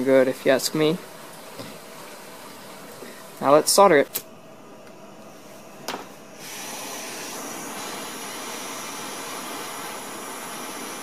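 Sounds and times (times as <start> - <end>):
blowtorch flame hissing: 6.2 - 11.0.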